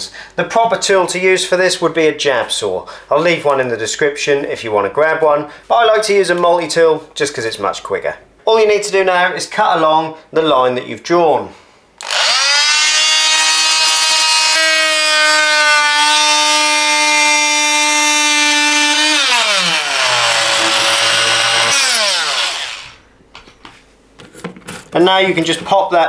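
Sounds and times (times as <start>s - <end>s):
multi-tool cutting plasterboard: 12.0s - 23.0s.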